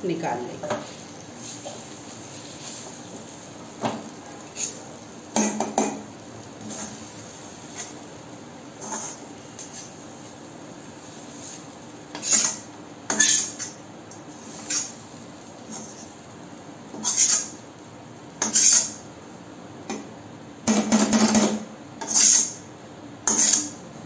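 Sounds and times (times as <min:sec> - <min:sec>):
metal spatula scraping iron pan: 0:12.1 - 0:13.7, 0:17.0 - 0:17.5, 0:18.4 - 0:19.0, 0:22.0 - 0:22.6, 0:23.3 - 0:23.7.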